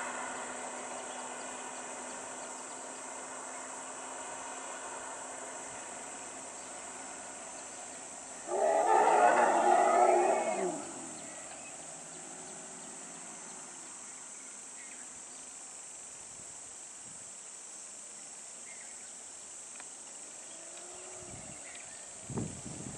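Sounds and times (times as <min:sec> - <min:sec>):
high insect drone: 0:00.0 - 0:22.9
elephant call: 0:08.2 - 0:12.2, 0:20.4 - 0:22.2.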